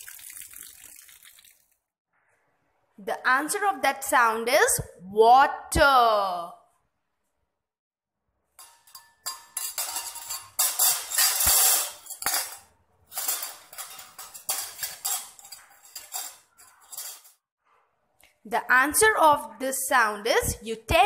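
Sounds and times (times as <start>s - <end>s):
cutlery and dishes clattering: 8.6s - 17.4s.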